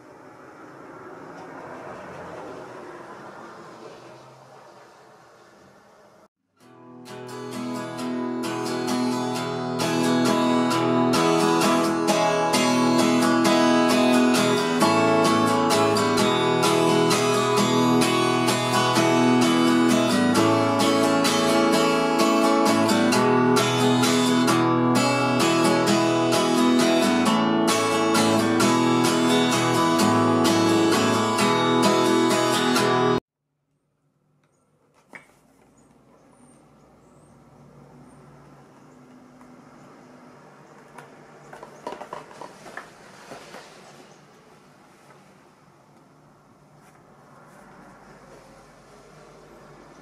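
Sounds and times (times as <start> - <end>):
acoustic guitar strumming: 6.6 - 33.2.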